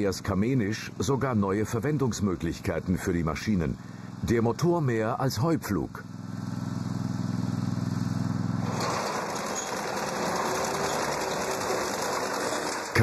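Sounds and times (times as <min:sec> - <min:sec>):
motor mower engine running: 0:00.0 - 0:13.0
machinery clatter: 0:08.6 - 0:13.0.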